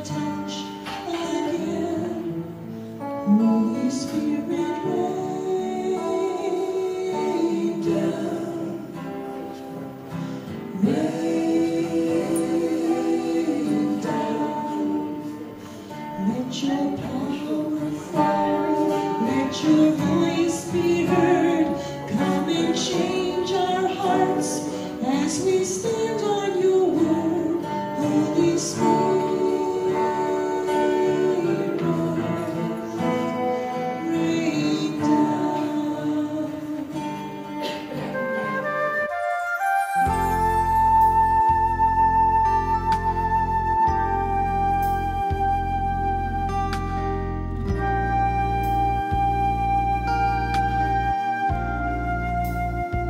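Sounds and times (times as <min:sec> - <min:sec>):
woman singing into a microphone: 0:00.0 - 0:09.4, 0:10.7 - 0:15.5, 0:16.1 - 0:38.9
guitar: 0:00.0 - 0:53.0.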